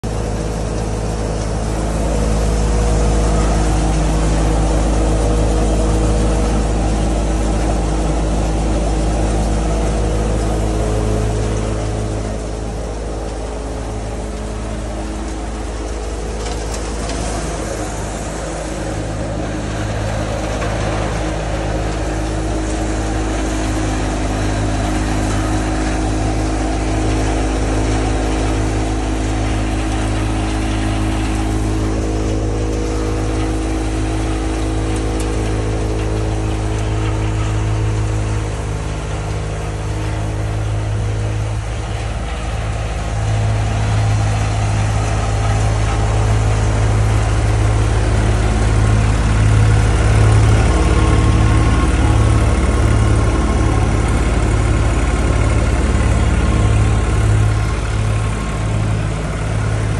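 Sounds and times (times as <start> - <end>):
tractor and thresher droning: 0.0 - 59.9.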